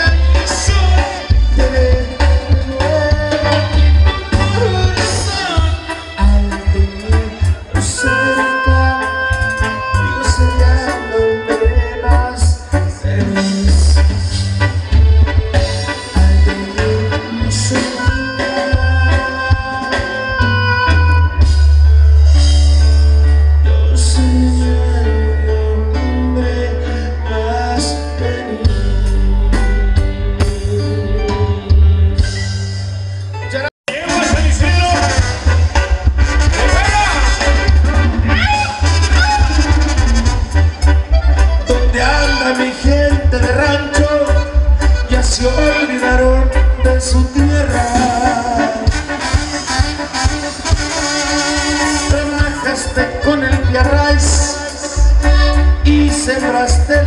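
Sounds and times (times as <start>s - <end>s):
heavy deep bass: 0.0s - 57.0s
live band through loud sound system: 0.0s - 57.0s
trumpets and trombone melody: 0.0s - 57.0s
heavy bass beat: 33.9s - 57.0s.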